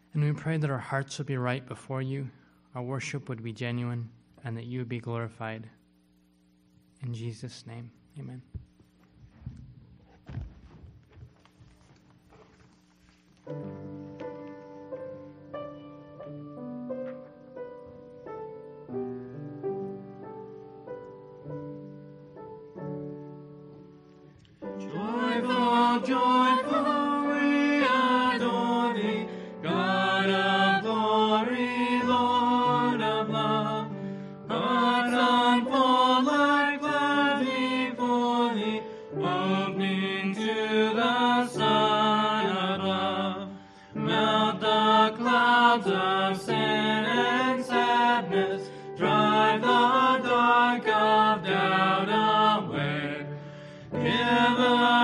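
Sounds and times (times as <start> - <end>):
sustained keyboard chords: 13.4 - 53.2
people singing a hymn: 24.6 - 55.0.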